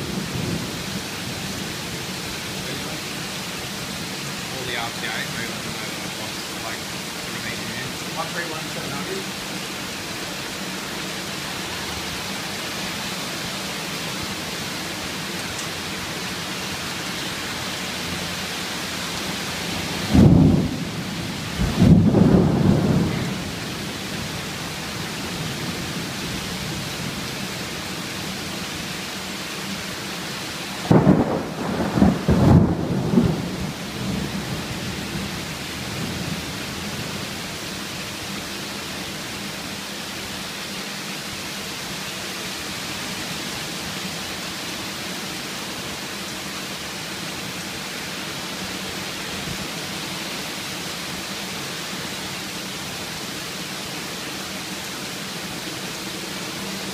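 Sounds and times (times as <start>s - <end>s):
heavy rain: 0.0s - 56.9s
thunder rumbling: 19.6s - 24.6s, 30.8s - 37.2s.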